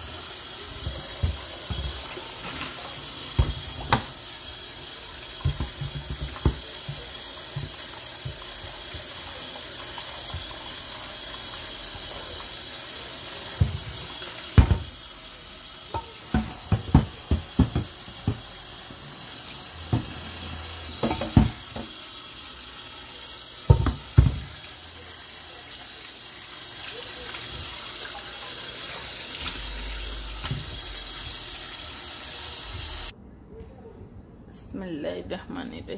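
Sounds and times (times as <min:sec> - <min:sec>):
tap water running into sink: 0:00.0 - 0:33.1
metal pot knocks and clanks: 0:05.4 - 0:08.5, 0:14.6 - 0:14.9, 0:15.9 - 0:18.5, 0:21.0 - 0:21.9, 0:23.7 - 0:24.5.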